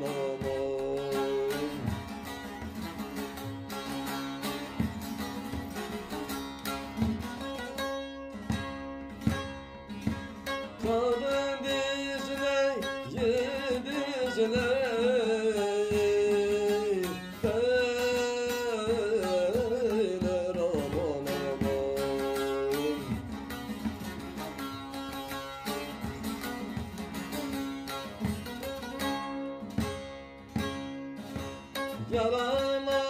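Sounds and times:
person singing: 0:00.0 - 0:02.2, 0:10.8 - 0:23.3, 0:32.0 - 0:33.0
plucked long-necked lute: 0:00.0 - 0:33.0.

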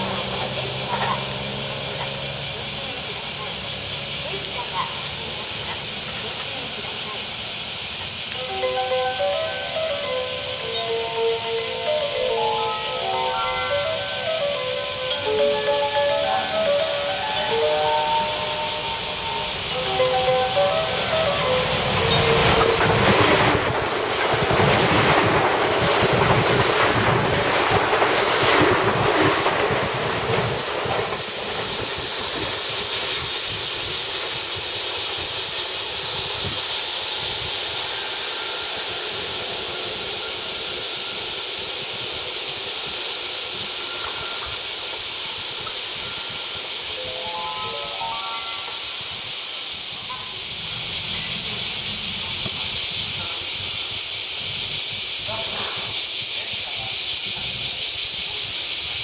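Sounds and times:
cicadas chorus: 0:00.0 - 0:59.0
electric train running past: 0:00.0 - 0:59.0
electronic chime melody: 0:08.4 - 0:22.7, 0:46.0 - 0:48.9.

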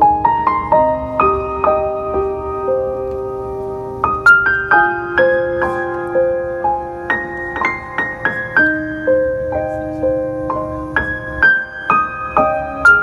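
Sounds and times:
slow piano music: 0:00.0 - 0:13.0.

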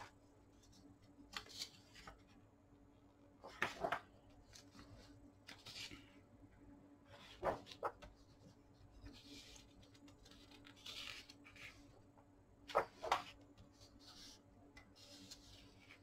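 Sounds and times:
paper rustling and sliding: 0:07.1 - 0:12.0, 0:12.7 - 0:16.0.

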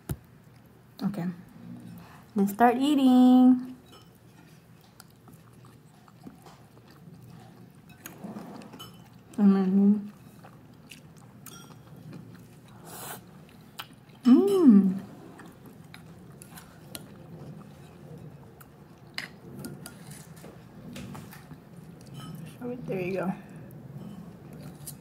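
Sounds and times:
chewing: 0:03.7 - 0:14.3, 0:14.9 - 0:22.6, 0:23.4 - 0:25.0.

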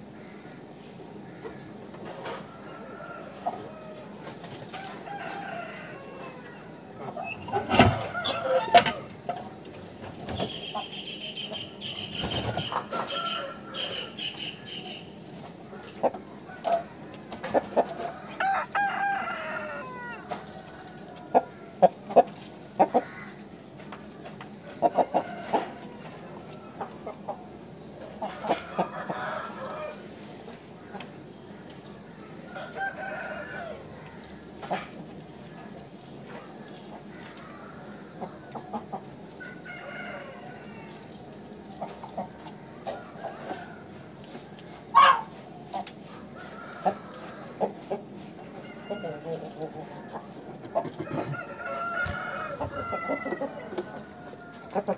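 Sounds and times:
rooster clucking: 0:01.4 - 0:31.2, 0:41.7 - 0:54.9
rooster crowing: 0:02.3 - 0:09.2, 0:12.6 - 0:14.8, 0:17.9 - 0:21.7, 0:28.5 - 0:30.2, 0:32.5 - 0:34.5, 0:39.4 - 0:41.0, 0:48.4 - 0:50.2, 0:50.9 - 0:54.9.

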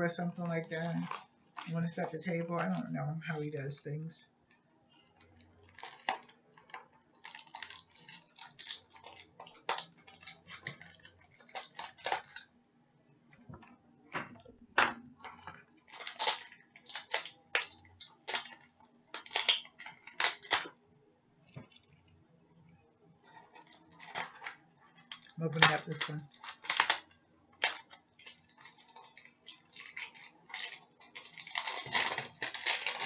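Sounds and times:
packaging clicks taps and crinkles: 0:00.5 - 0:01.9, 0:04.4 - 0:12.5, 0:15.2 - 0:20.8, 0:21.4 - 0:22.2, 0:23.3 - 0:33.0.

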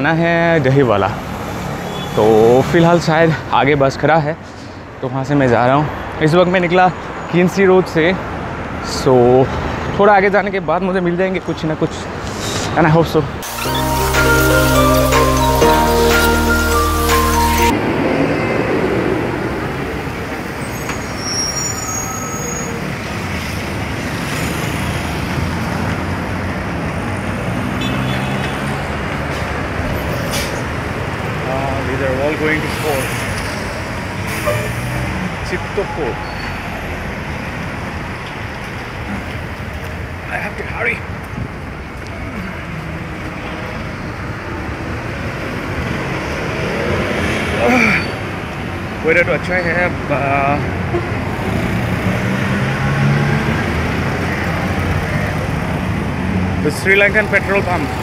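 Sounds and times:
road traffic rumble: 0:00.0 - 0:58.0
passing motor vehicles: 0:17.7 - 0:21.1, 0:22.7 - 0:40.3, 0:41.0 - 0:58.0.

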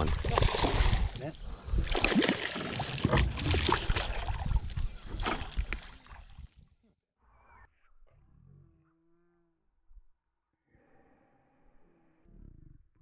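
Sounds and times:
fish splashing in water: 0:00.0 - 0:06.4.

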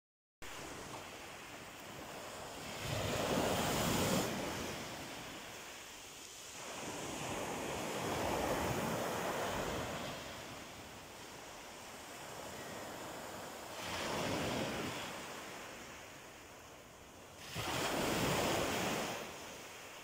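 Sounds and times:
sea waves breaking on pebble beach: 0:00.6 - 0:10.7, 0:17.4 - 0:20.0.

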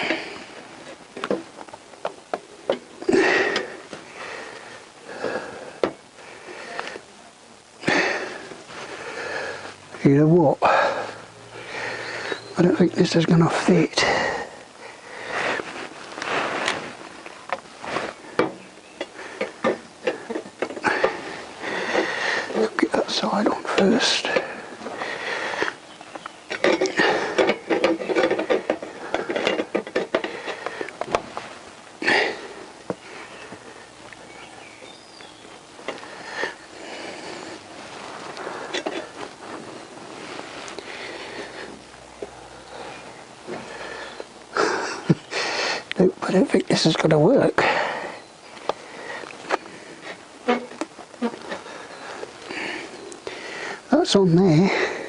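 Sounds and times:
short rustling: 0:15.1 - 0:34.0, 0:35.5 - 0:44.2
exhaust pipes knocking and clinking: 0:26.5 - 0:31.2.

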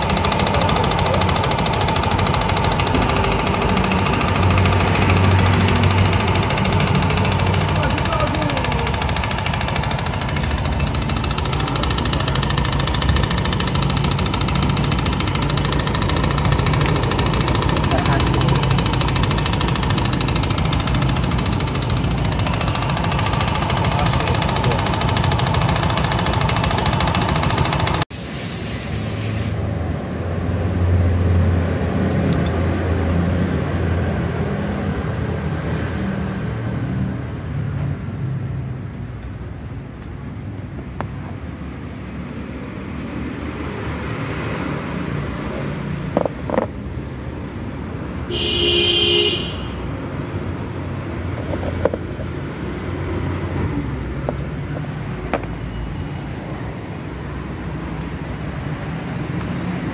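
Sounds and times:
scooter engine idling: 0:00.0 - 0:28.1, 0:48.3 - 0:49.8
horn toot: 0:48.3 - 0:49.8.

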